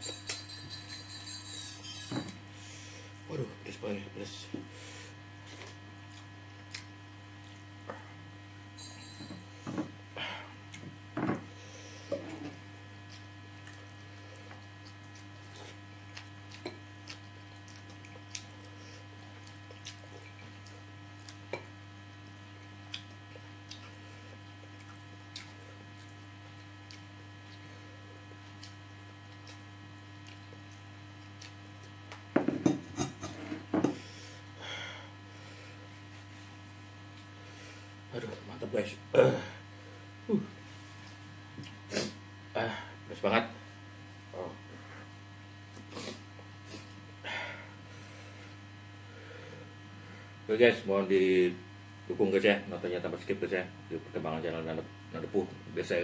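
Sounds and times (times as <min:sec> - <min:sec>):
steady electrical hum: 0:00.0 - 0:56.0.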